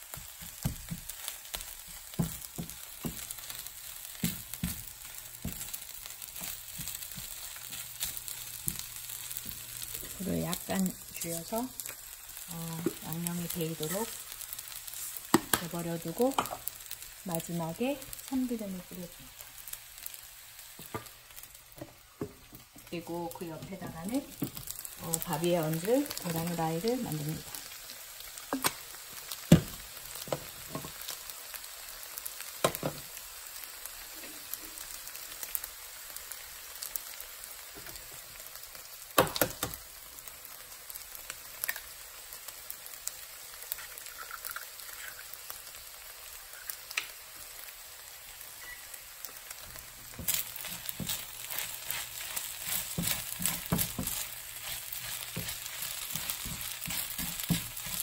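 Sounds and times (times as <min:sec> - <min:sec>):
egg sizzling in a pan: 0:00.0 - 0:58.0
spatula scraping a pan: 0:50.2 - 0:58.0.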